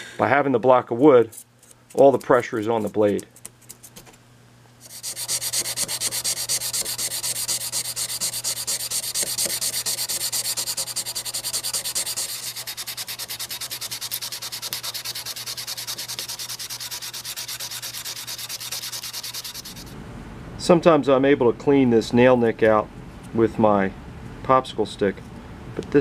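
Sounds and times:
sandpaper scratching metal blade: 1.2 - 3.8, 4.8 - 19.9.

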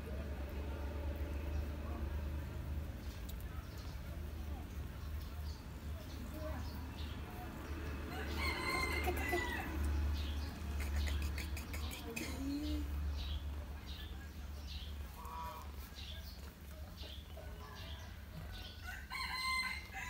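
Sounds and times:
rooster crowing: 8.1 - 9.9, 18.6 - 20.0.

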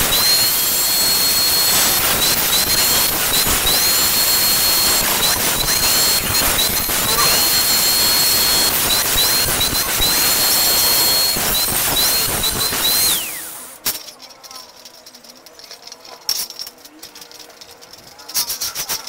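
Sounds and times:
angle grinder cutting steel: 0.0 - 13.9.

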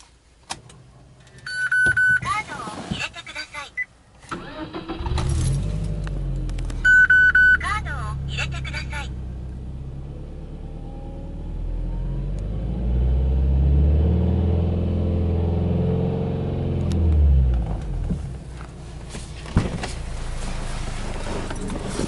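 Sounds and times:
car engine revving: 8.2 - 18.3.

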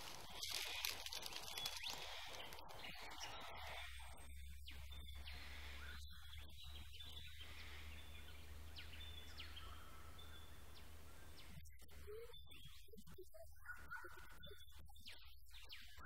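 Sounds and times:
faint high chirps: 0.2 - 16.0.

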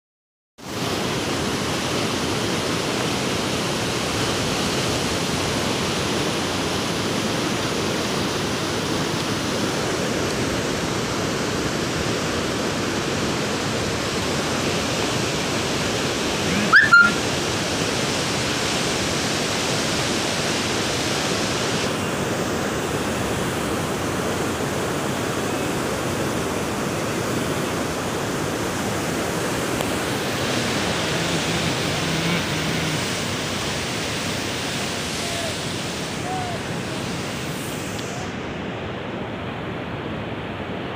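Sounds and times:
sharp sound with rising squeak: 16.5 - 17.2
heavy rain falling: 25.9 - 37.2.

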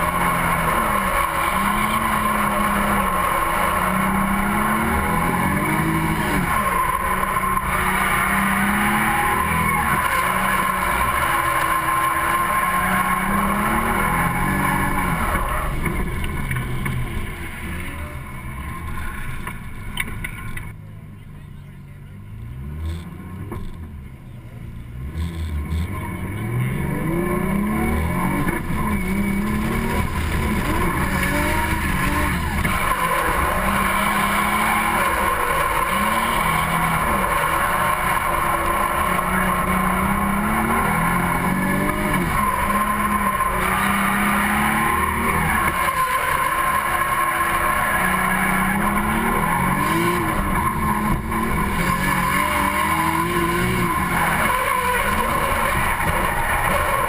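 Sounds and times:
tyres squealing: 0.0 - 15.8, 27.1 - 57.0
car engine revving: 0.0 - 20.7, 22.1 - 57.0.

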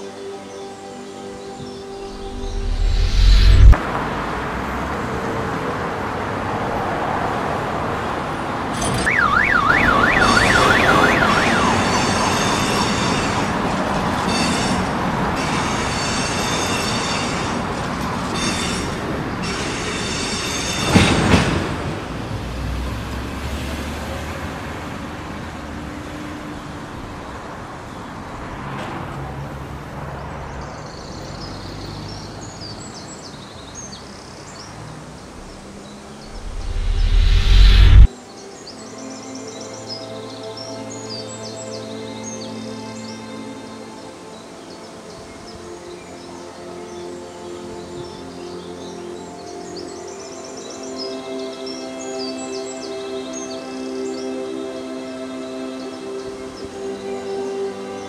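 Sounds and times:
street traffic and trams: 0.0 - 58.0
emergency vehicle siren warbling: 9.0 - 13.2.

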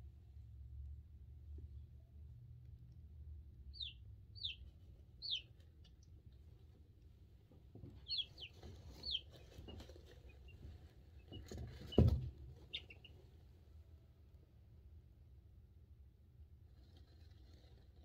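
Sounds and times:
chicks peeping: 3.7 - 6.2, 7.9 - 13.2
rustling in shavings: 8.0 - 13.2, 16.7 - 18.0.

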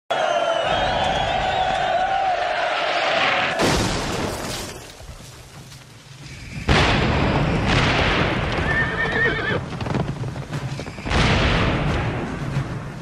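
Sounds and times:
cannon blast: 3.4 - 4.9, 6.6 - 9.0, 11.0 - 13.0
horse whinnying: 8.6 - 9.6.

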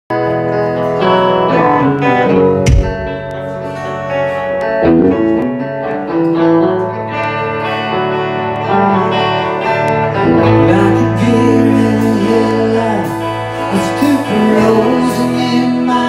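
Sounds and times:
electric guitars playing: 0.1 - 16.0
low thump: 2.6 - 3.4.

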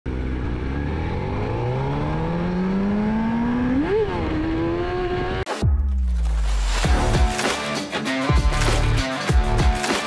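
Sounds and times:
motorcycle engine accelerating: 0.1 - 5.5.

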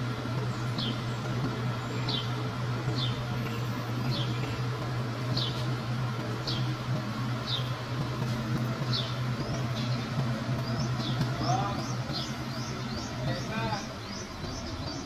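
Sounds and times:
vehicle engine idling: 0.0 - 15.0
bird chirping: 0.4 - 4.7, 5.3 - 5.7, 7.4 - 7.8, 8.8 - 15.0.

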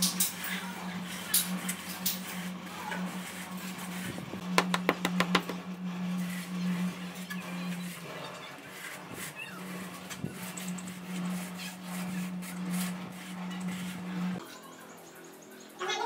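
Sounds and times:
trowel scraping cement: 1.0 - 4.2, 6.2 - 14.4.

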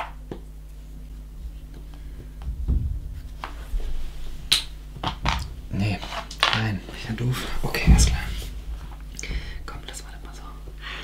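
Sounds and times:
low hum: 0.1 - 10.9.

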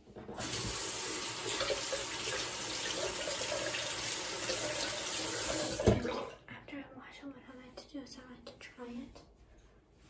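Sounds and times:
tap water running: 0.1 - 6.4.

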